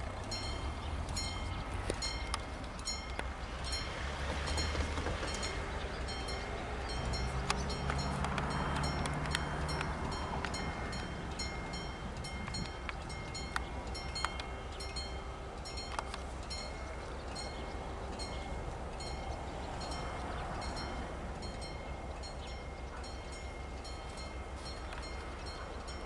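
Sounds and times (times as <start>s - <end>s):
level-crossing warning bell ringing: 0.0s - 26.0s
steady low rumble: 0.0s - 26.0s
sharp clicks: 7.0s - 11.6s, 12.2s - 14.6s, 15.8s - 16.3s.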